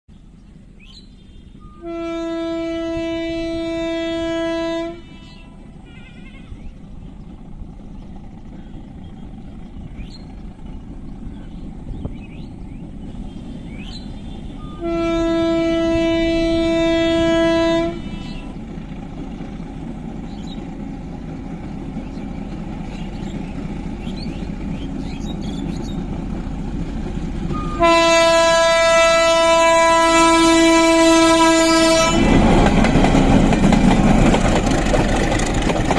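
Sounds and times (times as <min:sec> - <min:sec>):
train engine and wheel rumble: 0:00.1 - 0:35.9
locomotive horn blasts: 0:01.6 - 0:06.6, 0:14.4 - 0:18.7, 0:27.5 - 0:32.5.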